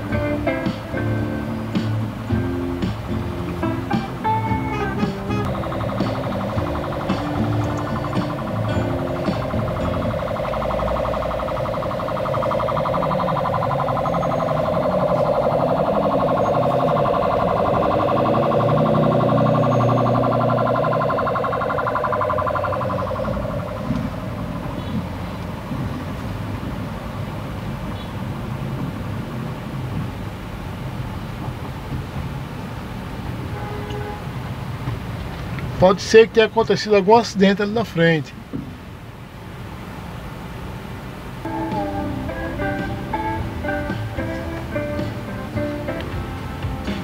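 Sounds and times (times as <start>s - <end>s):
idling traffic rumble: 0.0s - 47.0s
ambulance siren warbling: 2.3s - 27.1s, 41.4s - 47.0s.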